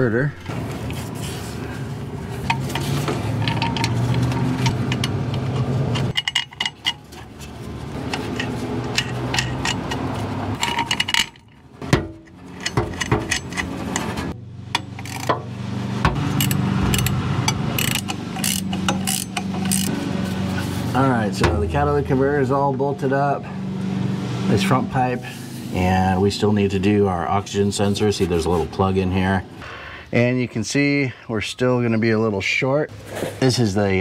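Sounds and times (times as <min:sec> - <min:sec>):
low steady hum: 0:00.3 - 0:26.7
metal clinks and scrapes of bolts: 0:02.4 - 0:15.4, 0:16.3 - 0:20.0.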